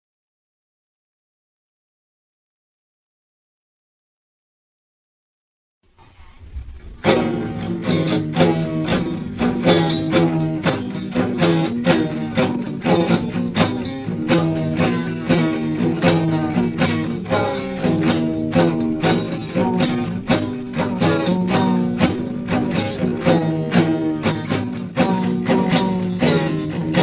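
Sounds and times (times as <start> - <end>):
plucked strings over a beat: 6.5 - 27.0.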